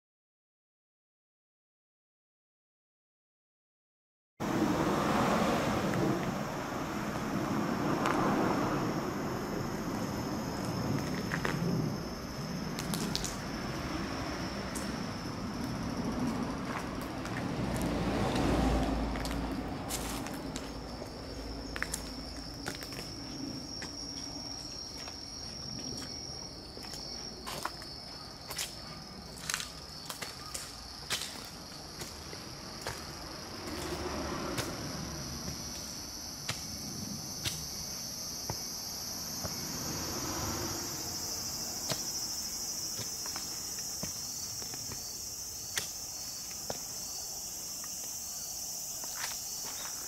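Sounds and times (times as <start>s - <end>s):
wind rumbling on microphone: 4.4s - 25.0s
footsteps scuffing on concrete: 15.0s - 34.0s, 41.2s - 50.0s
insect high-pitched trill: 19.0s - 50.0s.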